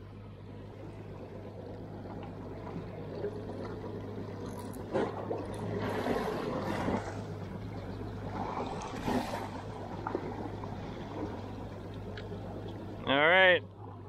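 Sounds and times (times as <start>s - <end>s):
steady low hum: 0.0s - 14.0s
water splashing against boat hull: 2.0s - 13.0s.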